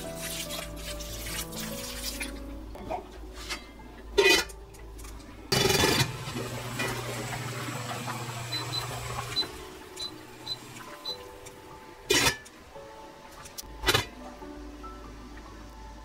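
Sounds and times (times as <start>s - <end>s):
water boiling: 0.0s - 2.7s, 5.5s - 12.4s
cooktop humming: 0.0s - 16.0s
steel pot clanking: 3.5s - 4.6s, 5.5s - 12.5s.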